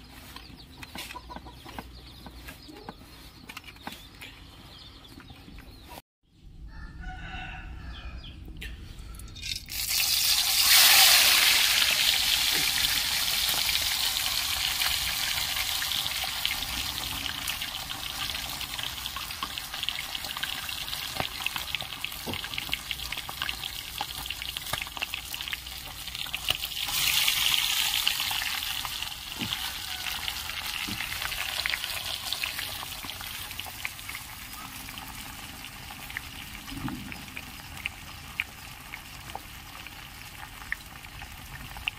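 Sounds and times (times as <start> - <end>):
oil popping: 9.4 - 41.9
fish sizzling in hot oil: 9.7 - 41.9.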